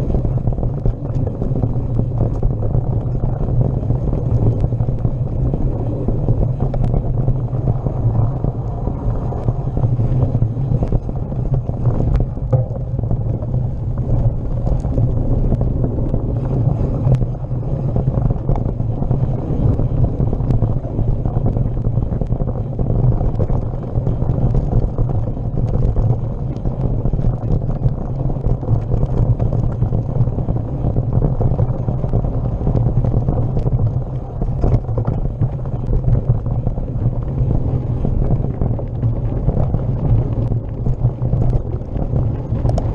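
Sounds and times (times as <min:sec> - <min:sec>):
wind buffeting microphone: 0:00.0 - 0:42.9
bike rattles and knocks: 0:10.6 - 0:17.1.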